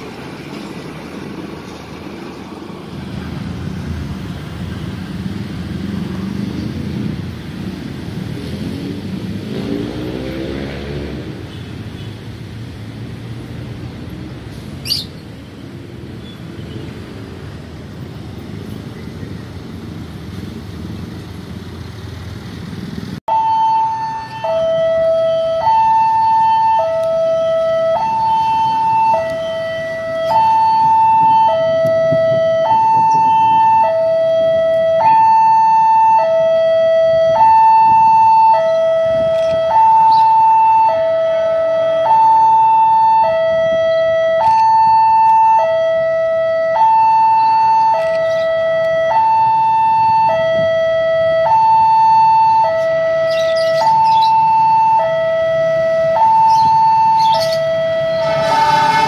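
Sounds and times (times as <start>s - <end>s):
level crossing alarm two tones: 23.3s - 59.0s.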